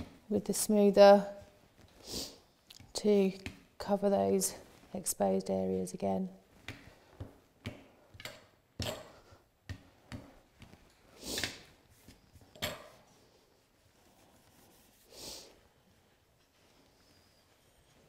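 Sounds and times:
hand rubbing fondant: 13.0 - 16.0
plastic smoother rubbing fondant: 13.5 - 15.2.

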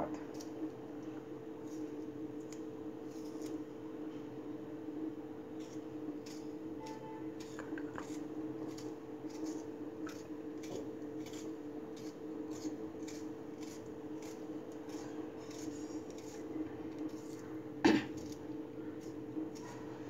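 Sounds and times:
knife slicing tomato: 5.5 - 20.0.

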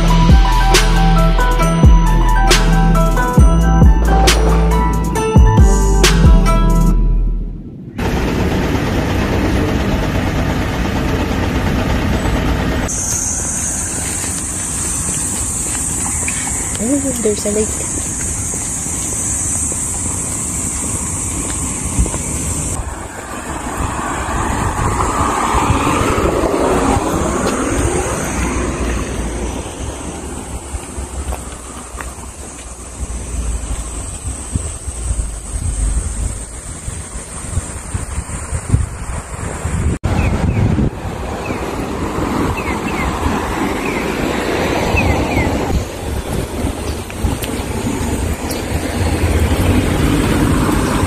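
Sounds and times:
road traffic: 0.0 - 51.0
high falling chirps: 12.2 - 22.8
wind rumbling on microphone: 13.4 - 51.0
vehicle passing close by: 22.0 - 51.0.

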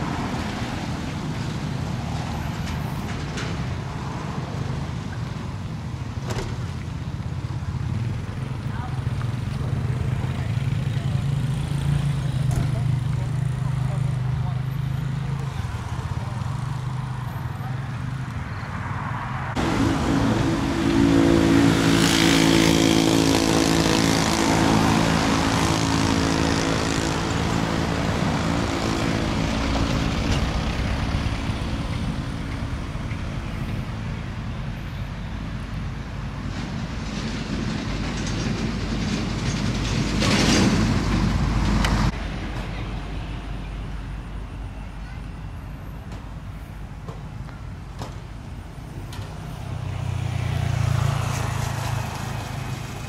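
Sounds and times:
heavy truck diesel engine: 19.5 - 53.0.

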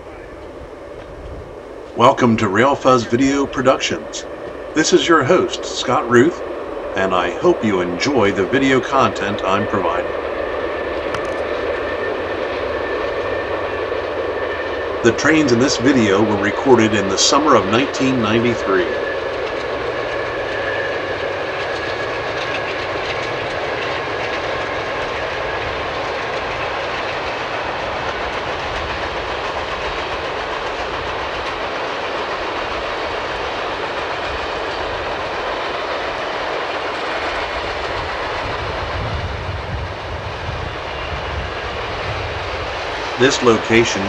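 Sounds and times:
diesel locomotives working: 0.0 - 44.0
train wheels clacking over rail joints: 10.7 - 39.0.

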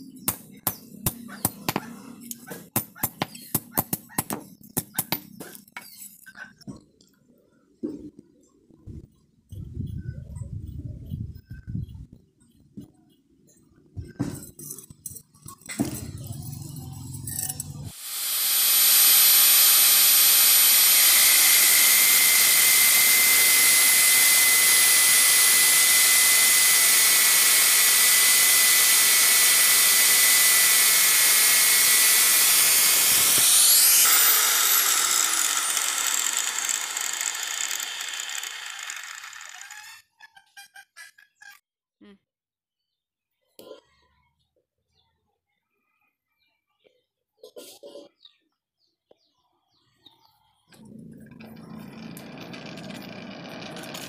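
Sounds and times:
angle grinder cutting steel: 15.9 - 40.2, 50.8 - 54.0
angle grinder winding down: 16.3 - 40.1, 50.8 - 54.0.

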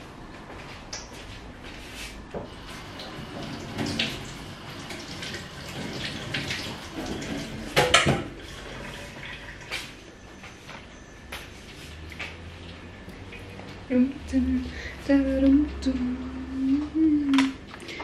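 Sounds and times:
tap running into sink: 2.4 - 9.0
dishes and utensils clattering: 7.0 - 8.3.

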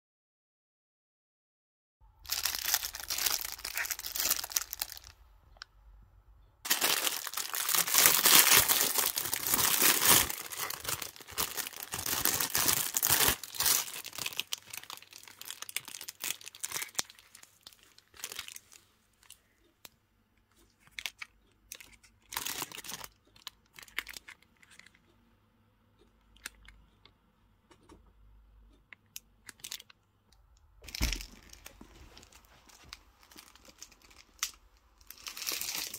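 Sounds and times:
paper wrapping rustling and tearing: 2.2 - 5.2, 6.7 - 18.8, 30.8 - 35.9.

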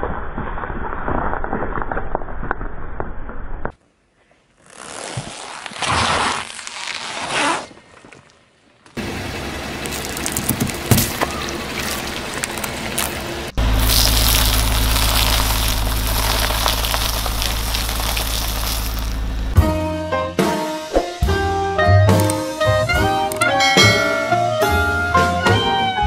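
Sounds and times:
tyre crushing objects on asphalt: 9.8 - 19.6.

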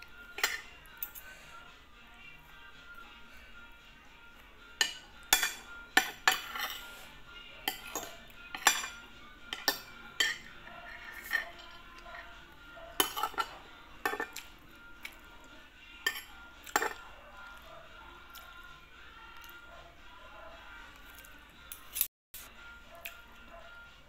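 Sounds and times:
cutlery clinking on a plate: 0.3 - 1.2, 4.8 - 7.0, 7.6 - 12.3, 13.0 - 15.2, 16.0 - 17.1.

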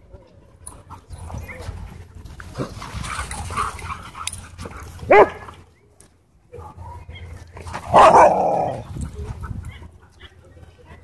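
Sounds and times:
dog barking: 5.1 - 5.4, 7.9 - 8.8.

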